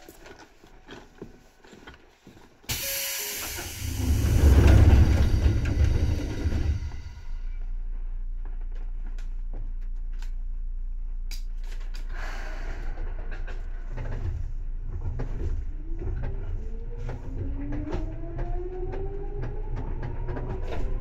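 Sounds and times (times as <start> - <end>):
train equipment hum: 0.0 - 21.0.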